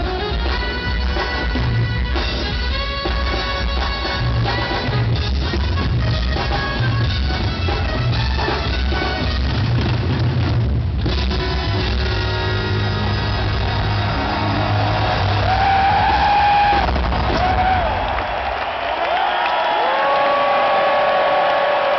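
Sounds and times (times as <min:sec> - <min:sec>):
drum solo: 0:00.0 - 0:18.4
crowd yelling and whooping: 0:12.7 - 0:21.9.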